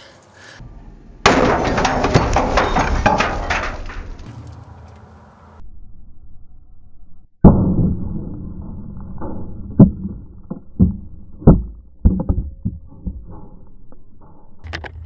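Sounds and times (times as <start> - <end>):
camera knocking and tumbling: 9.8 - 13.8.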